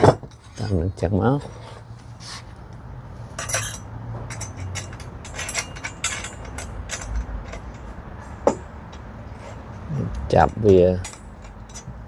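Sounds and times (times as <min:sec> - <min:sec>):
small metal parts clicking and rattling: 0:03.3 - 0:08.6, 0:10.1 - 0:12.0.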